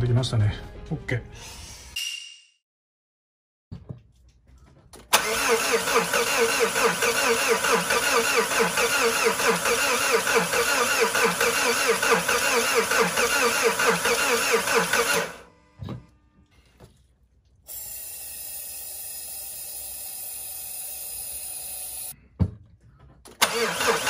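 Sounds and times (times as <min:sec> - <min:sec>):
starter cranking diesel engine: 0:05.0 - 0:15.5, 0:23.3 - 0:24.0
thump: 0:15.8 - 0:16.0.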